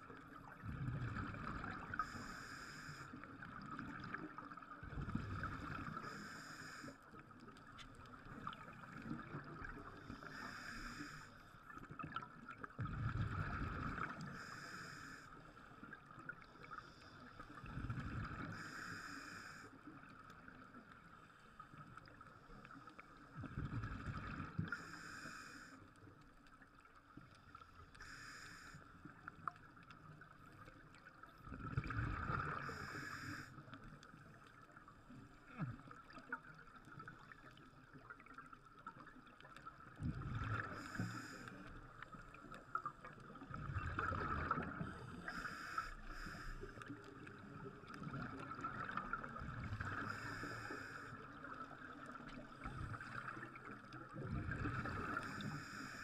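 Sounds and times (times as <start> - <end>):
regulator hissing inhale: 1.9 - 3.3, 5.8 - 7.2, 10.0 - 11.6, 14.2 - 15.7, 18.5 - 19.9, 24.7 - 26.0, 27.9 - 29.0, 32.6 - 33.6, 40.6 - 41.8, 44.8 - 46.9, 49.9 - 51.3, 55.1 - 56.0
bubbling exhale underwater: 31.4 - 32.9, 43.4 - 46.2, 54.2 - 55.4.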